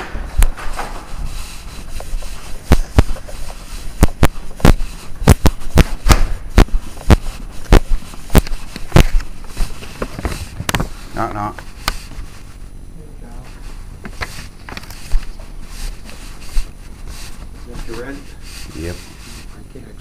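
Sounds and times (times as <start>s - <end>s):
sharp irregular pops and clicks: 4.0s - 9.5s.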